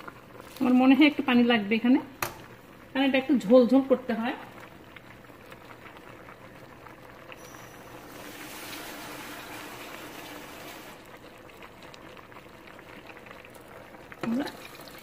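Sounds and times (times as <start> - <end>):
pan simmering: 0.0 - 15.0
water pouring into hissing pan: 4.7 - 15.0.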